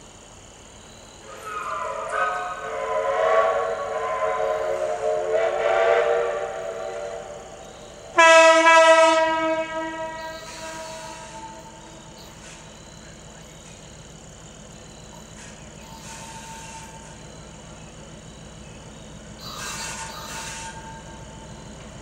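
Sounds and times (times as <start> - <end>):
locomotive whistle chord blasts: 1.2 - 12.2
single-note horn blast: 8.2 - 11.7.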